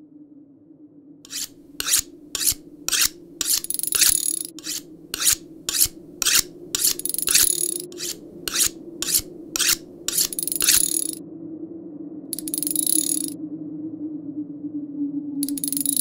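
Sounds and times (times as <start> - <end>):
blade sharpening on steel: 1.3 - 11.2, 12.4 - 13.4, 15.4 - 16.0
high metallic ring: 1.3 - 11.2, 12.4 - 13.4, 15.4 - 16.0.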